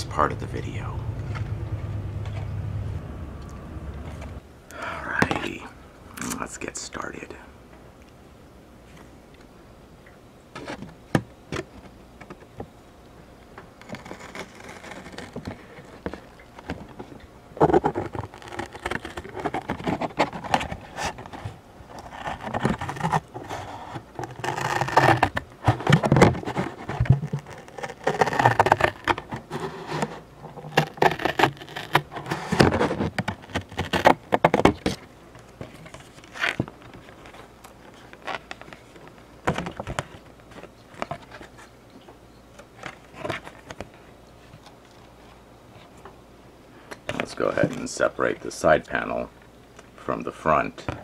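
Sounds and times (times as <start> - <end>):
cardboard box scraping and crackling: 13.8 - 41.7.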